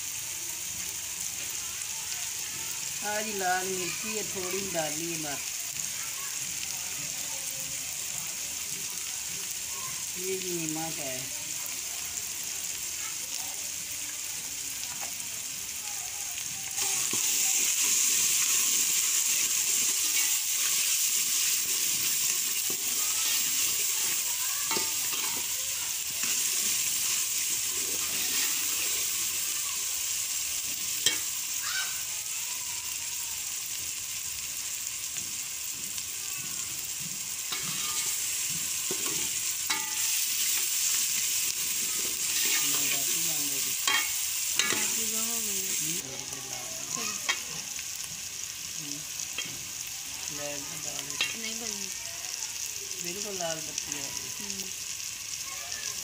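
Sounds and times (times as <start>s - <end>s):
vegetables sizzling in a pot: 0.0s - 56.0s
ladle scraping and clinking on pot: 43.9s - 45.0s.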